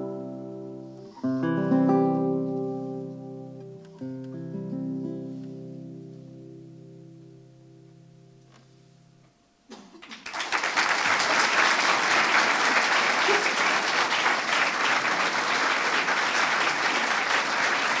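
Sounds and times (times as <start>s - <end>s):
audience applauding: 9.8s - 18.0s.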